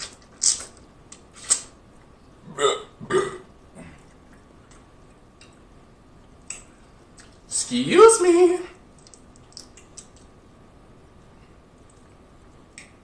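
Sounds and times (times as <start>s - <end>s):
man burping: 2.4s - 4.1s.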